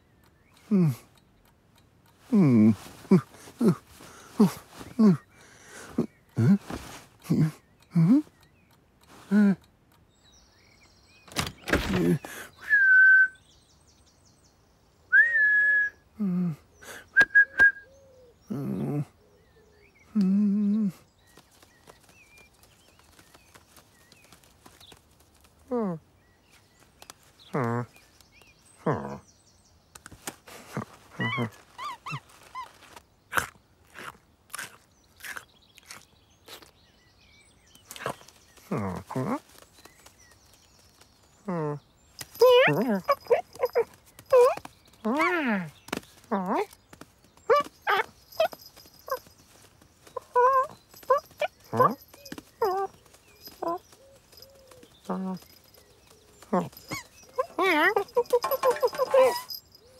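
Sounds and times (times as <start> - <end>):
man calling: 2.2 - 5.2, 41.4 - 45.8, 50.2 - 53.8
door opening with clatter: 11.2 - 12.3
man whistling: 12.6 - 13.4, 15.1 - 16.0, 17.2 - 17.9
quick chirping sounds: 21.3 - 25.7, 42.1 - 59.9
tongue clicks: 29.9 - 36.8.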